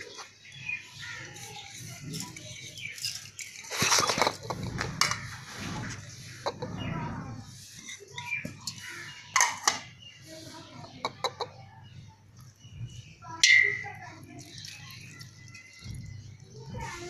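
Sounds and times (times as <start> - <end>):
metal kitchenware tapping steel plate: 13.4 - 13.8.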